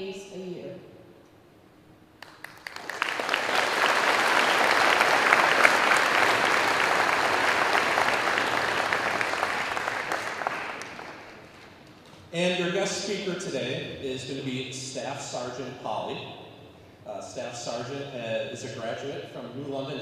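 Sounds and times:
audience applauding: 2.2 - 11.8.

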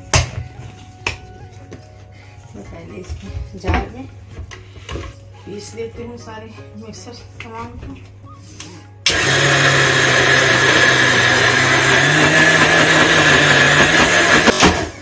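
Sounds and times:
mixer grinder motor running: 9.0 - 15.0.

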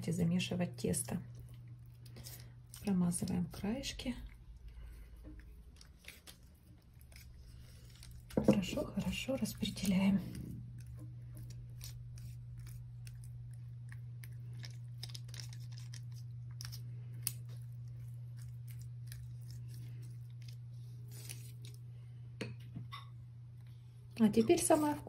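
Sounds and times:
steady low hum: 0.0 - 25.0
parchment paper crinkling: 5.4 - 21.8
pastry brush brushing dough: 24.3 - 25.0.

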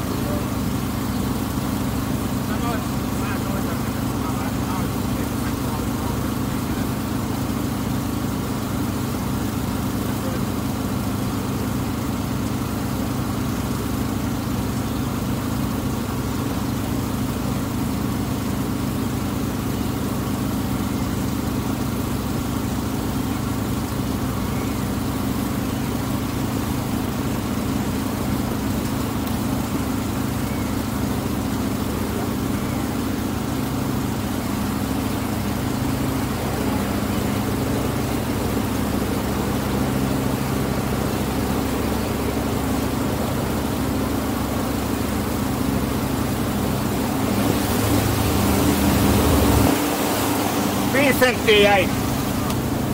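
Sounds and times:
boat engine low drone: 0.0 - 52.9.

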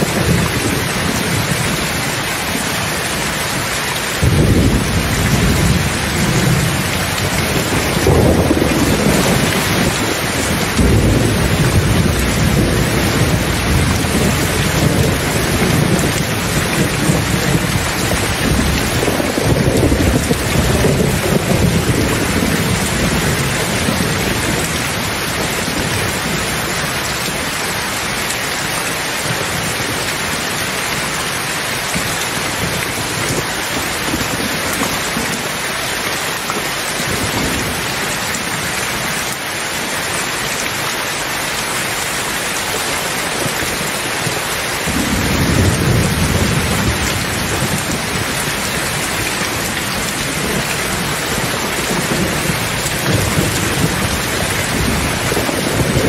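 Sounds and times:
steady rain falling: 0.0 - 56.0
rolling thunder: 4.2 - 27.3, 44.3 - 56.0.

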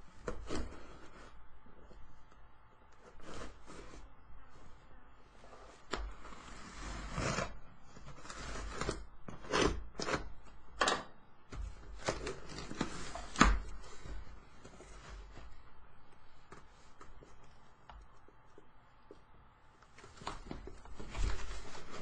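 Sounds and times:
cardboard scraping and ripping: 5.5 - 10.3, 11.8 - 15.6, 19.9 - 22.0.

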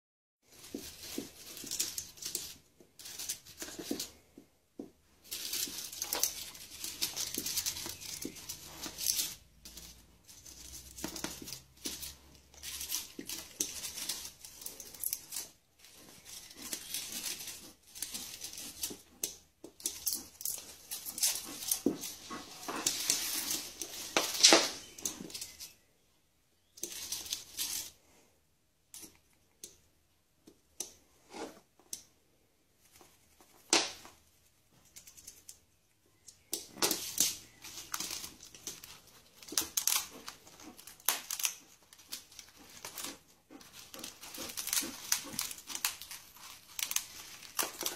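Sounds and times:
parrot shredding dry strips: 0.4 - 4.3, 5.2 - 25.8, 36.4 - 47.9.

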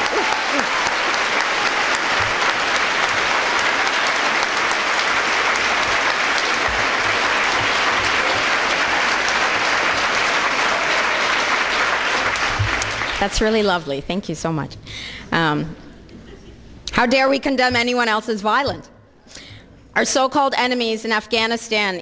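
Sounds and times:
audience applauding: 0.0 - 13.7.

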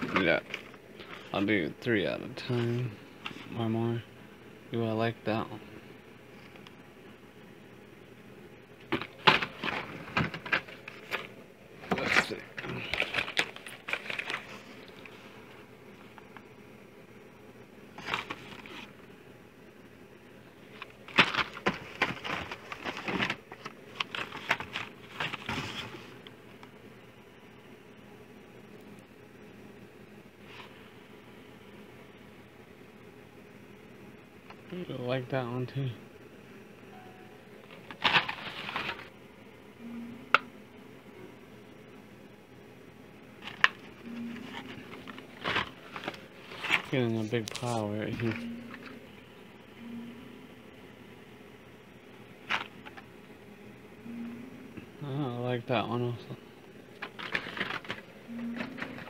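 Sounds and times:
plastic blister packs crinkling: 8.8 - 16.2, 17.9 - 19.0, 20.7 - 26.3, 37.7 - 39.1, 43.4 - 48.9, 56.9 - 59.0.

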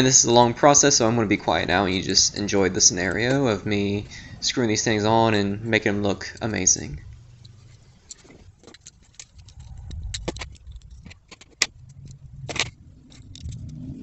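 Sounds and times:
low background rumble: 0.0 - 14.0
screwdriver clicks and metal rattles: 7.4 - 13.8.

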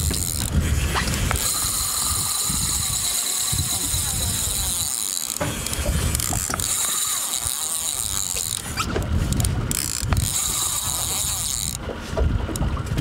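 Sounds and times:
fishing reel clicker ratcheting: 0.0 - 11.8.

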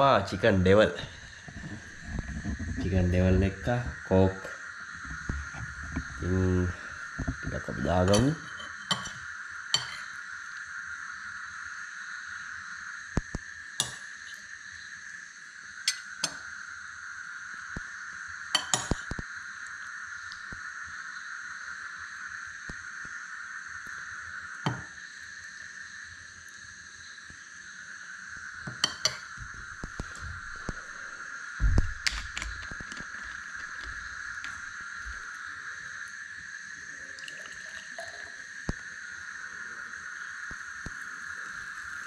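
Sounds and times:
cutlery clinking against plates: 8.1 - 9.2, 9.8 - 10.1.

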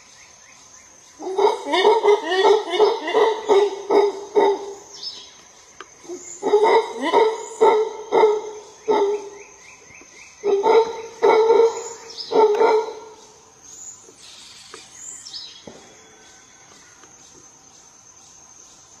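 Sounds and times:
high insect buzz: 0.0 - 19.0
howler monkey barking roars: 1.2 - 5.0, 6.0 - 9.5, 10.4 - 13.3.

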